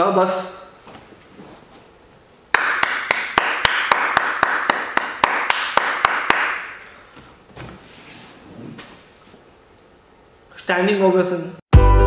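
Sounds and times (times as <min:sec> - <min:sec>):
crowd clapping: 0:02.5 - 0:06.7
man's sharp hand claps: 0:02.5 - 0:06.8.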